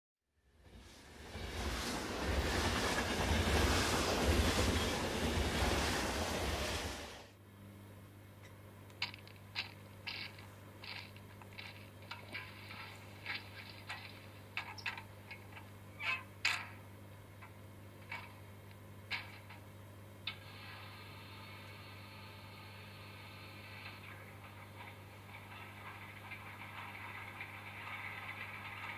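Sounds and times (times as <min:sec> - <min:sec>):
loud rushing noise: 0:01.0 - 0:07.3
model locomotive humming: 0:01.2 - 0:07.3, 0:20.2 - 0:28.9.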